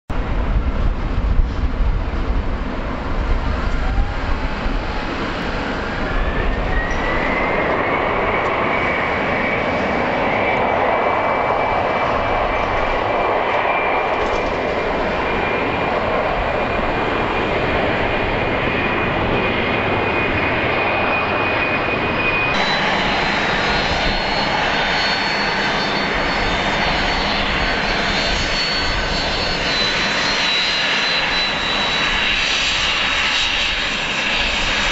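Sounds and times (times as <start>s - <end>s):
jet engine rush and whine: 0.1s - 34.9s.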